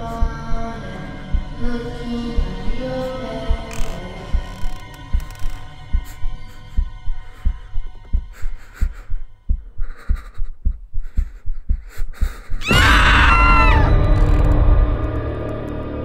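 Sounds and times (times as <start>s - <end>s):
heartbeat thumping: 0.0s - 13.6s
breathy hisses: 6.0s - 12.7s
shrieking stinger with sustained tone: 12.7s - 16.0s.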